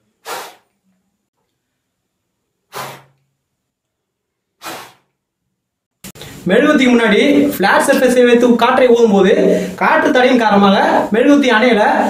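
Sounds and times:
breath puffs blown at candle: 0.2s - 0.7s, 2.7s - 3.3s, 4.6s - 5.2s.

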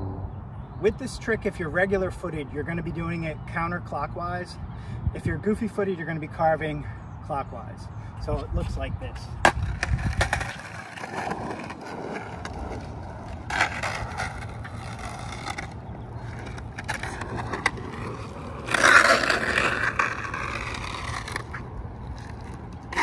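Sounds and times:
skateboard wheels rolling and scraping: 9.3s - 23.0s
skateboard wheels dragging sideways: 9.4s - 23.0s.

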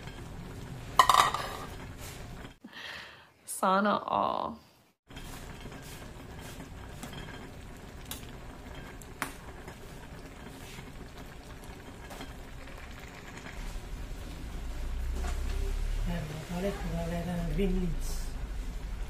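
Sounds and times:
stew bubbling in pot: 5.1s - 16.8s.

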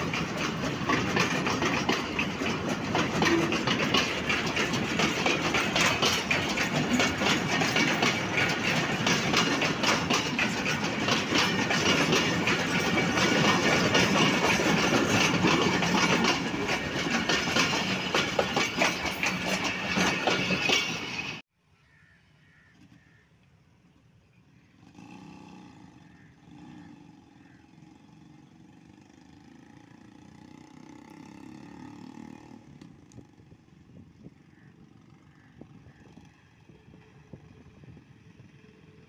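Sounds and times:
freight train wheels clattering: 0.0s - 21.4s.

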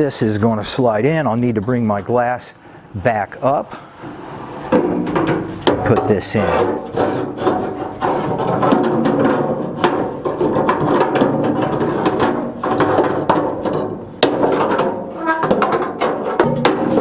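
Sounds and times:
metal knocks and rattles: 4.1s - 17.0s.

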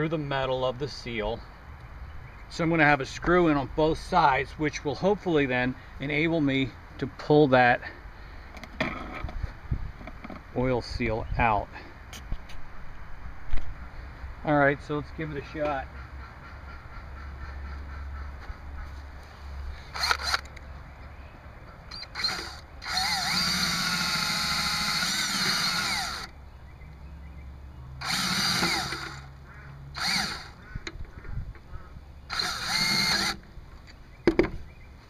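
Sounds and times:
drill motor whine: 21.9s - 26.3s, 28.0s - 29.3s, 30.0s - 30.6s, 32.3s - 33.4s.

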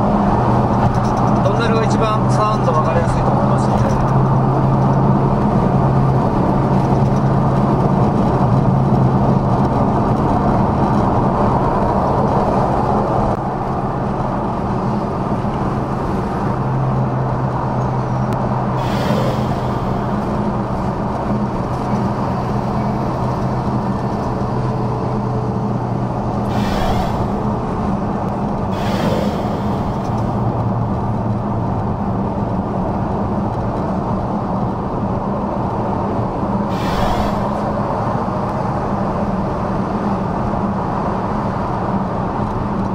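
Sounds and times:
car engine drone: 0.0s - 41.0s
road and tyre noise: 0.0s - 42.9s
brief rushing noises: 18.8s - 20.5s, 26.5s - 27.9s, 28.7s - 30.6s, 36.7s - 38.0s.

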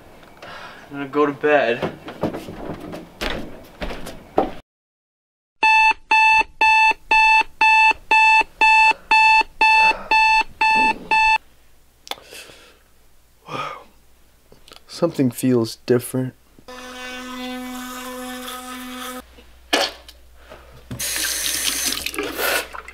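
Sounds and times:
knocks and shuffles: 1.6s - 4.6s
alarm clock beeping: 5.6s - 11.4s.

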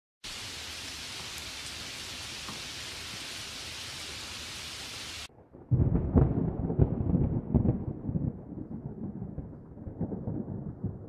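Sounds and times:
heavy rain hissing: 0.2s - 5.3s.

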